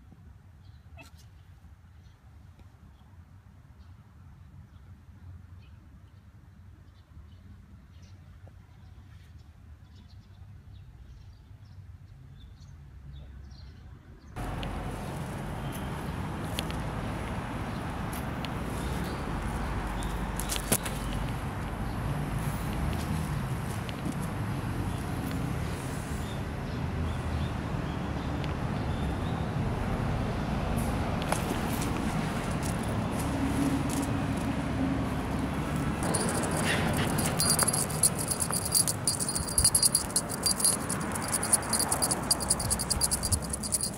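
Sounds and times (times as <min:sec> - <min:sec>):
outdoor rumble and hiss: 0:14.4 - 0:43.9
faint ticks: 0:36.0 - 0:43.9.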